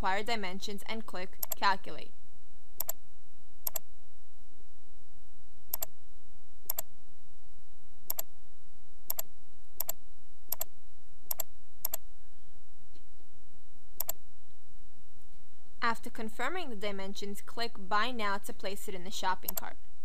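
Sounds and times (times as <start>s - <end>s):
computer mouse clicks: 1.4s - 1.6s, 5.7s - 5.9s, 6.7s - 6.9s, 8.1s - 8.3s, 9.1s - 10.7s, 11.3s - 12.0s, 14.0s - 14.2s, 19.5s - 19.7s.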